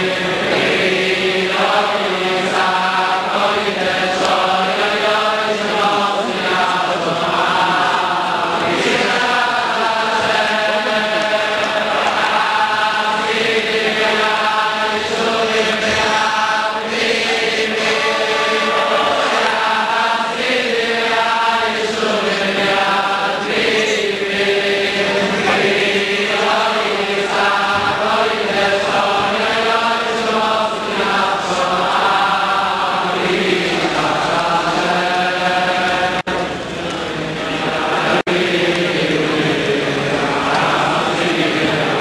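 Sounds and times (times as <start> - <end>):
men singing in unison: 0.0 - 42.0.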